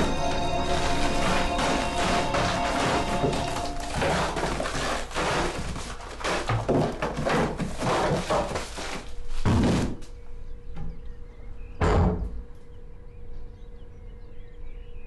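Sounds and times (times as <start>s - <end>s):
packets clattering into bin: 0.0s - 10.0s.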